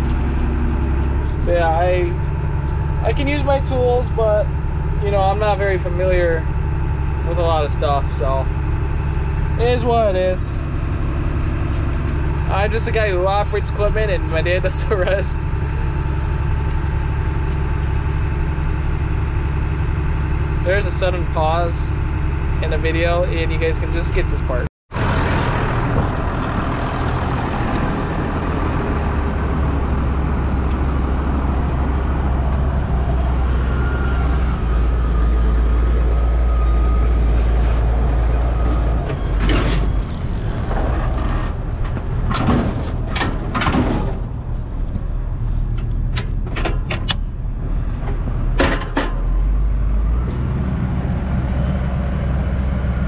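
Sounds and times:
tractor engine running: 0:00.0 - 0:53.0
short knocks and rattles: 0:39.4 - 0:45.0.

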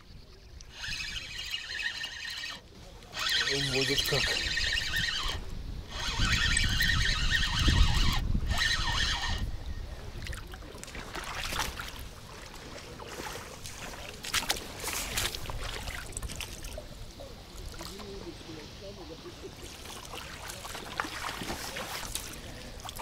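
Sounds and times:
wind buffeting microphone: 0:00.0 - 0:02.4, 0:03.1 - 0:19.4
shallow water splashing: 0:10.0 - 0:18.5, 0:19.3 - 0:23.0.

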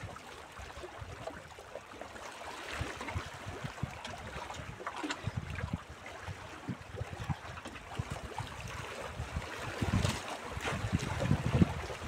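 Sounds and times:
wind buffeting microphone: 0:02.8 - 0:12.0.

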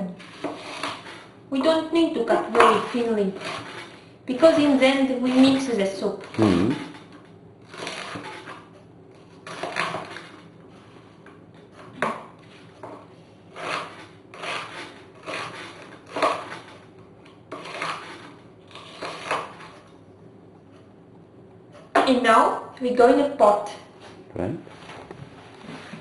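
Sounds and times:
knife slicing onion on wooden board: 0:00.2 - 0:01.2, 0:09.4 - 0:10.4, 0:11.6 - 0:16.8, 0:17.5 - 0:19.9.

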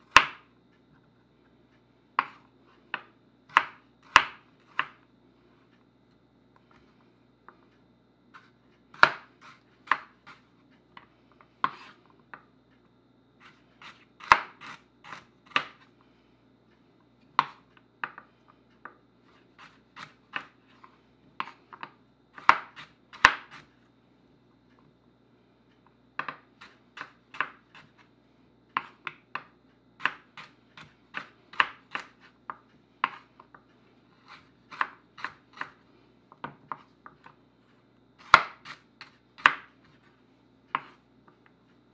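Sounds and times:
knife tapping wooden board: 0:38.2 - 0:39.7.

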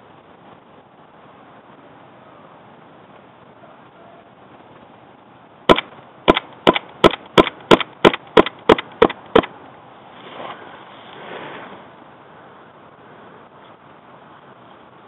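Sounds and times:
airsoft pistol firing: 0:05.7 - 0:09.5.

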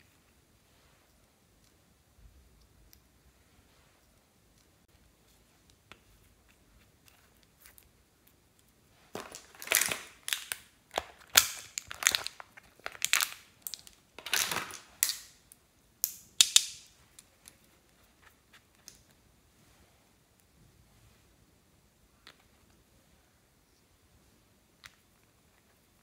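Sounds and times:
plastic tray crackling: 0:09.2 - 0:15.2.

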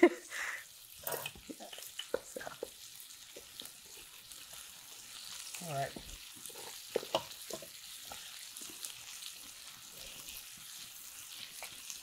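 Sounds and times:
onions sizzling in a pan: 0:00.0 - 0:12.0
spatula clacking against pan: 0:06.8 - 0:08.3.

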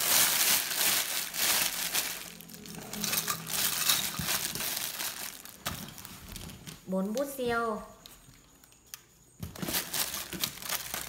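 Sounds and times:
plastic wrapping crinkling: 0:00.0 - 0:07.3, 0:09.4 - 0:11.0.

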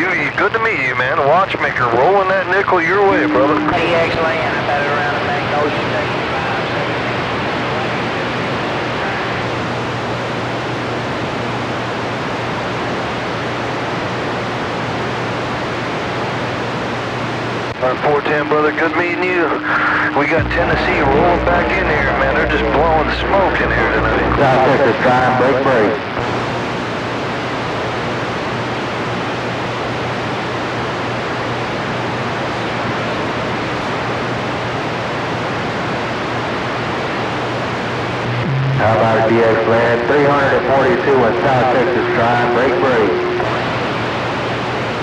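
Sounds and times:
radio static hiss: 0:00.0 - 0:45.0
faint low hum: 0:00.6 - 0:27.9, 0:36.8 - 0:45.0.

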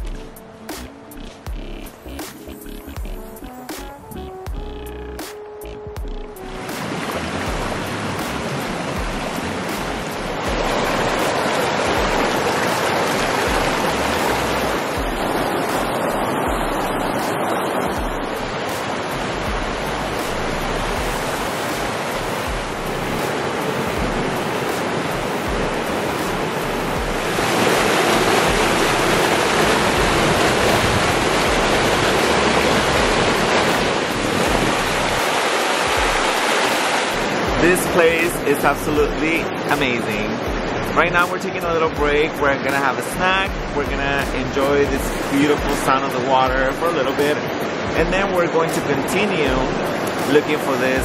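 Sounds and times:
river rushing over rocks: 0:06.6 - 0:41.7.

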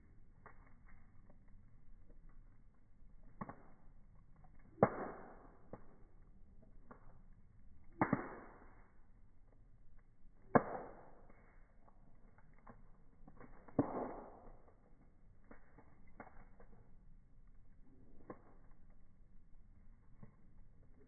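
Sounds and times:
bonfire crackling: 0:00.0 - 0:21.0
loud sharp pops of fire: 0:03.3 - 0:06.2, 0:07.8 - 0:09.0, 0:10.4 - 0:16.8.

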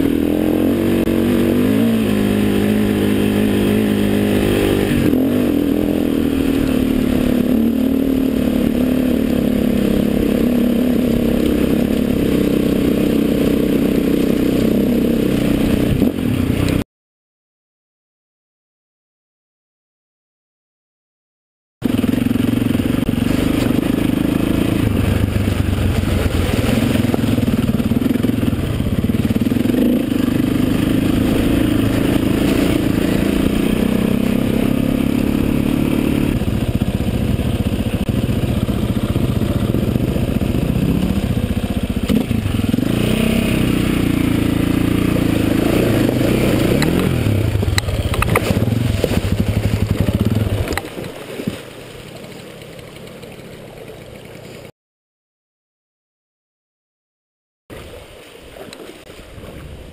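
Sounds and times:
motorbike engine revving: 0:00.0 - 0:16.8, 0:21.8 - 0:50.8
water splashing: 0:23.2 - 0:29.5, 0:45.0 - 0:54.6, 0:57.7 - 0:59.9.

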